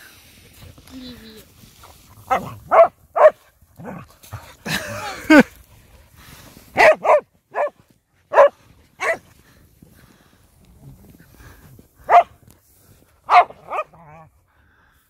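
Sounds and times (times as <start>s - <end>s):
dogs barking: 2.3s - 3.4s, 6.8s - 9.2s, 12.1s - 12.3s, 13.3s - 14.0s.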